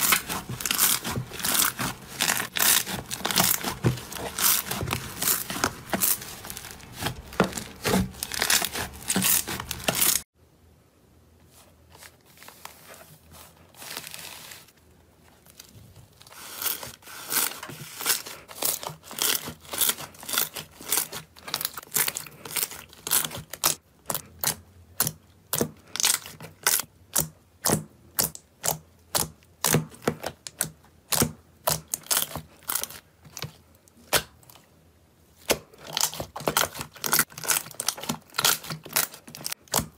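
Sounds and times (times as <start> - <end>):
slime crackling and popping: 0.0 - 10.2, 17.4 - 33.5, 35.4 - 39.9.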